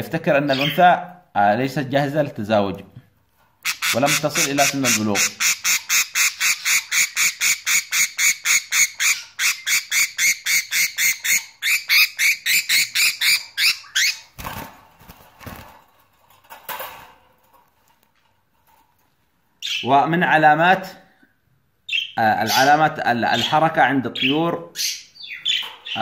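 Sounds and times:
soft rustling: 14.8 - 19.5.

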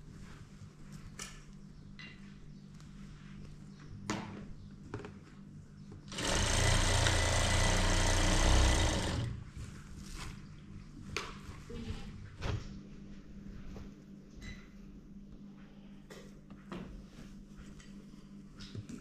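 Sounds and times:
faint hum: 0.0 - 19.0
sewing machine stitching: 6.1 - 9.4.

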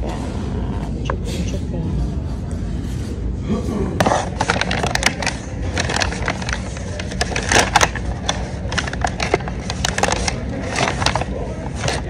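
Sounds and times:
paper bag crinkling: 4.0 - 12.0.

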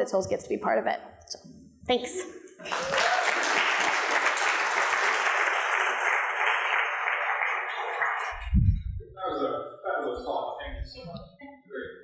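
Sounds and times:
audience applauding: 2.6 - 8.5.

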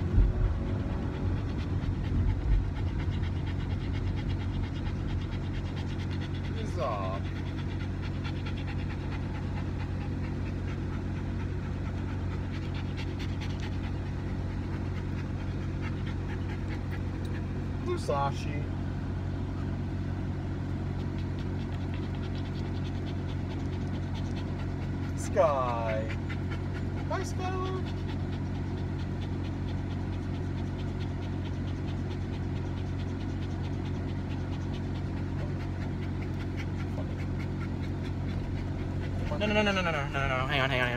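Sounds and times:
wind buffeting: 0.0 - 6.5
road rumble: 0.0 - 40.9
small dog panting: 0.0 - 40.9.

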